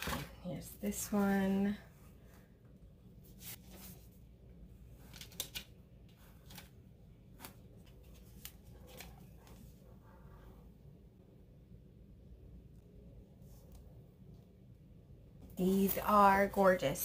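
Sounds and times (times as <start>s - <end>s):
cardboard palette clicks and rustles: 5.0s - 9.6s.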